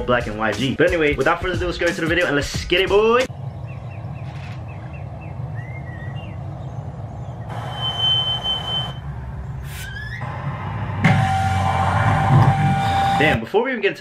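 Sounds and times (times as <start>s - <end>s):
low steady rumble: 3.3s - 7.7s
car burnout tyres squealing: 7.5s - 9.0s, 9.7s - 10.4s, 11.0s - 13.4s
hiss with high squeal: 7.5s - 9.0s.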